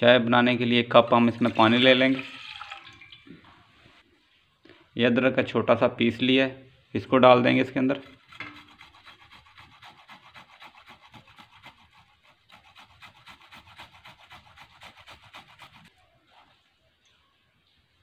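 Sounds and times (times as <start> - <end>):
ginger rasping on metal grater: 7.9 - 15.9.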